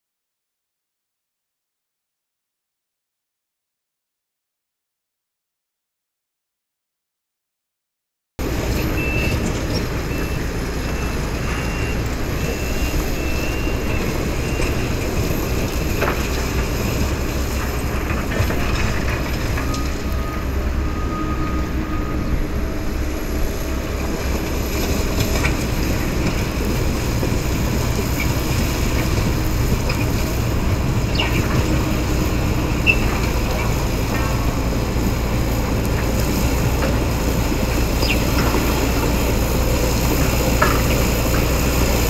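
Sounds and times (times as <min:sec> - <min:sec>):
bulldozer diesel engine under load: 0:08.4 - 0:42.0.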